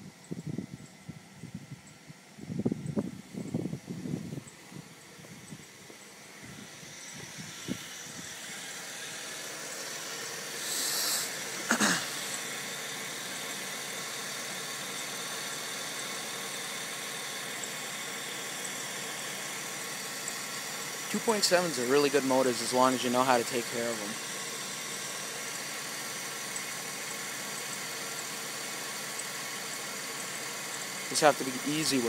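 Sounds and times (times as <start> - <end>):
car engine idling: 3.2 - 32.0
brief hiss: 10.0 - 12.4.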